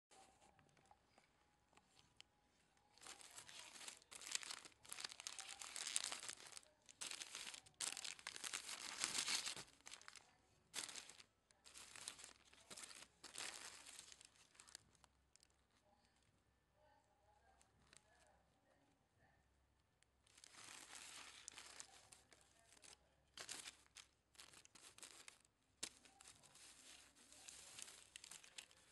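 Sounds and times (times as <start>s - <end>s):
paper and plastic crinkling: 2.8s - 15.8s, 20.2s - 28.9s.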